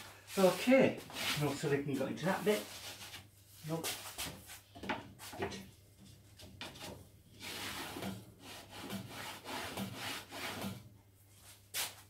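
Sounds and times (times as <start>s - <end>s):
straightedge scraping wooden board: 6.6s - 10.8s.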